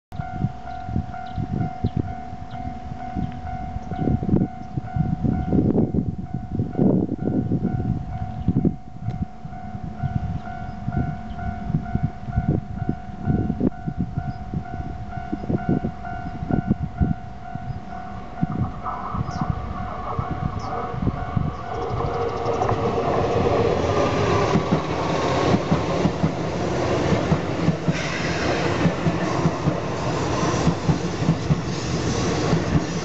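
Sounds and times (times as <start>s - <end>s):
level crossing alarm dinging: 0.2s - 26.6s
low gusty rumbling: 0.2s - 33.0s.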